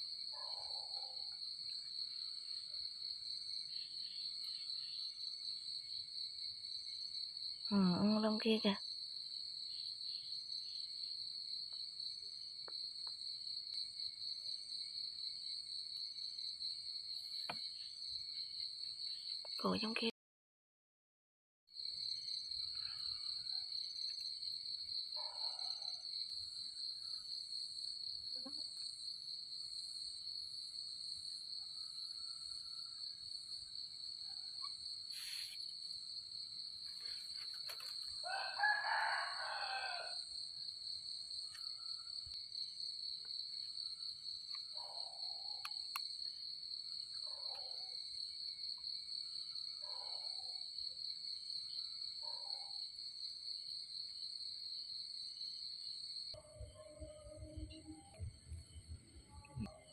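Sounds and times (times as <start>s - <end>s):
night insects chirring: 0.0s - 20.1s, 21.8s - 59.9s
rooster crowing: 38.2s - 40.2s
distant rooster crows: 38.2s - 40.3s.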